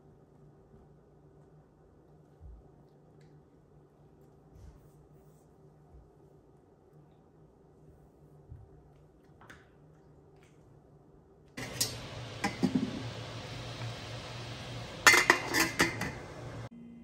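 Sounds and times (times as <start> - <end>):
metal lid clanking on pot: 11.6 - 16.7
steady hiss: 11.6 - 16.7.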